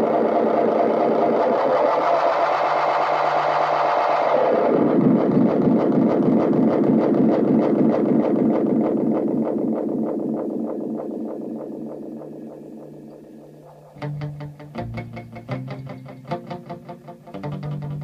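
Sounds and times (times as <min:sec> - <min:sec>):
pulsing echo feedback drone: 0:00.0 - 0:17.2
low steady hum: 0:07.8 - 0:16.3.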